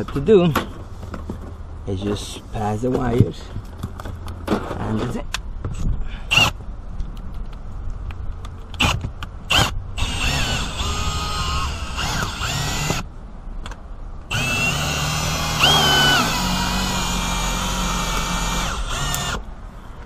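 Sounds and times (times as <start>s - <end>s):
cordless drill running: 6.3s - 6.6s, 9.5s - 13.0s, 14.3s - 19.4s.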